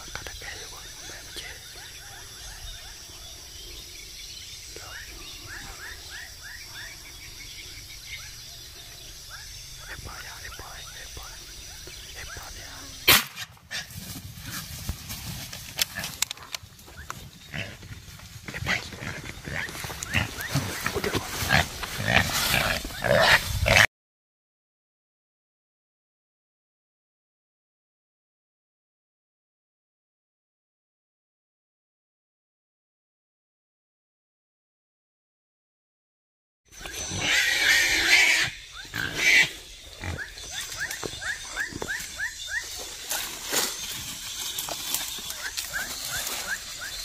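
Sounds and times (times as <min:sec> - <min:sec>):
wild pigs grunting and squealing: 0:15.8 - 0:23.9, 0:36.7 - 0:47.0.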